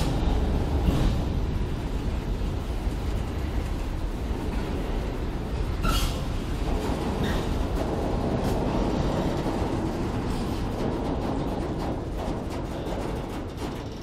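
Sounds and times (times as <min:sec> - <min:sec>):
steel wheels rumbling on rails: 0:00.0 - 0:14.0
brief high wheel squeal: 0:05.8 - 0:06.2.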